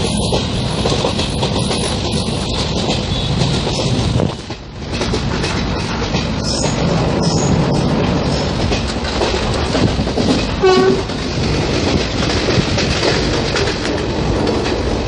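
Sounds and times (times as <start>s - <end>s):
train wheels rumbling on track: 0.0s - 15.0s
train horn blast: 10.6s - 11.1s.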